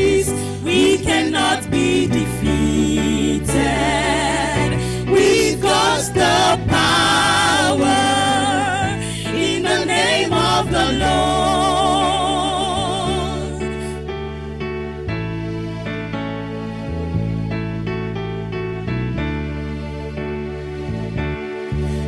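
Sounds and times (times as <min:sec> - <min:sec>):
women's gospel group singing: 0:00.0 - 0:13.9
electric keyboard accompaniment: 0:00.0 - 0:22.0.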